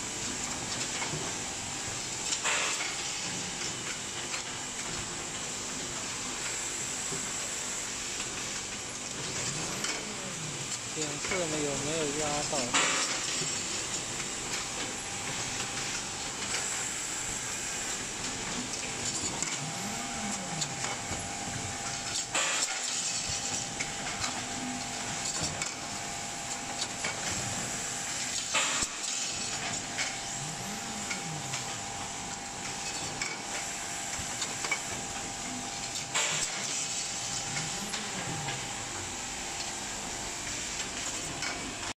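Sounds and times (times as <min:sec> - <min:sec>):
assembly machine running: 0:10.8 - 0:41.9.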